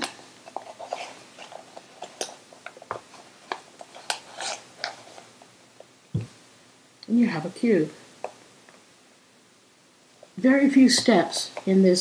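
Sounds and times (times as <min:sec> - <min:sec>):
paper rustling and crinkling: 0:00.5 - 0:05.3.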